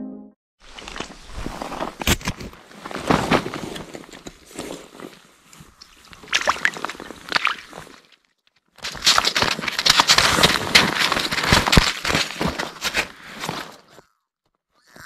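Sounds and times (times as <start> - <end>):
wet slush crackling: 0.7 - 14.0
water sloshing: 2.9 - 8.2.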